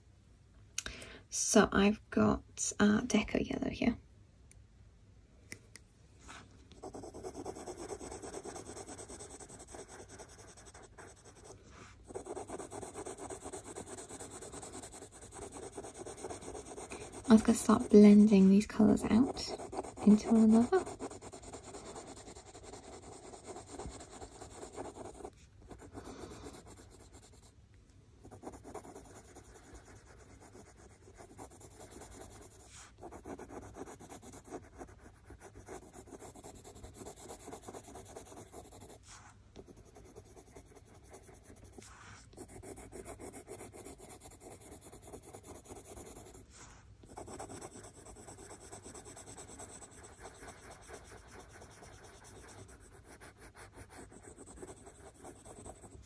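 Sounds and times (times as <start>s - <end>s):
coloured pencil scratching on paper: 6.7s - 27.5s, 28.2s - 56.0s.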